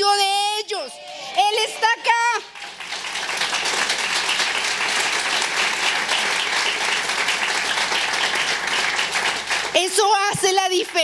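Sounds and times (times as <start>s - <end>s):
congregation clapping: 1.4s - 11.0s.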